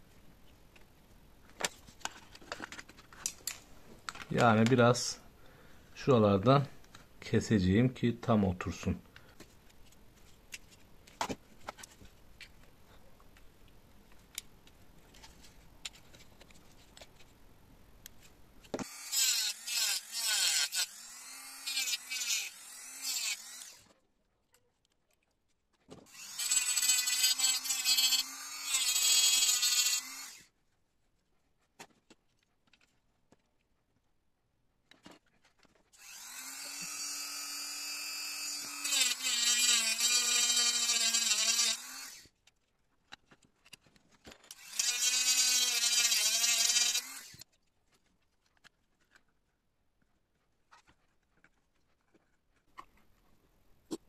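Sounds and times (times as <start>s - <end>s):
rotary tool cutting plastic: 18.7s - 24.0s, 25.9s - 30.5s, 35.0s - 47.6s.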